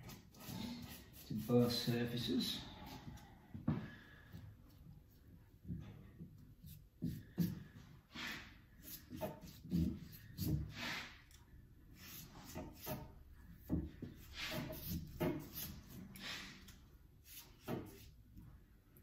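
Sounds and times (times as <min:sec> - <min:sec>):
scratchy brush strokes: 0:00.0 - 0:03.0, 0:11.9 - 0:13.1, 0:14.1 - 0:18.2.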